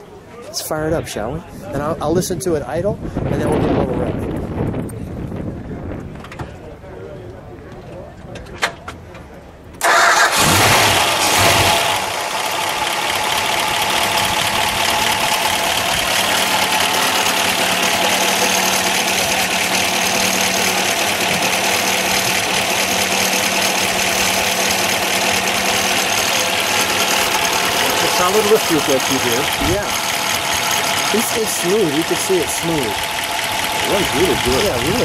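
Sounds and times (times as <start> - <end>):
car engine starting and idling: 9.8 - 35.0.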